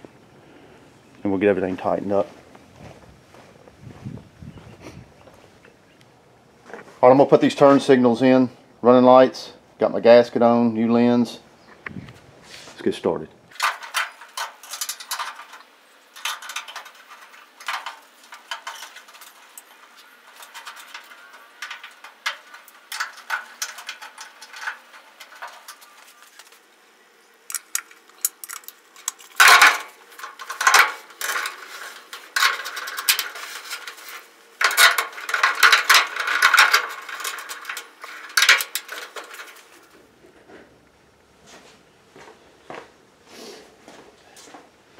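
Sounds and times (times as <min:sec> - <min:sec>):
metal parts and tools clinking: 0:13.5 - 0:26.7, 0:27.4 - 0:40.0.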